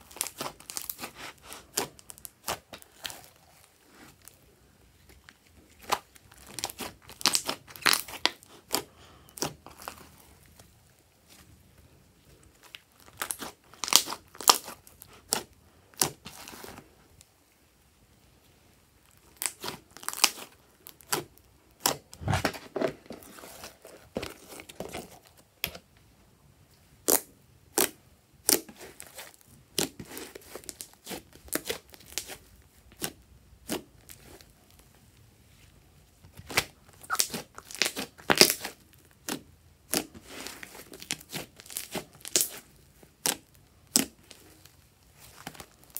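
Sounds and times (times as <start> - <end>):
slime popping and crackling: 5.8 - 10.0, 12.6 - 16.6, 19.3 - 22.6, 36.4 - 40.2, 40.9 - 44.4.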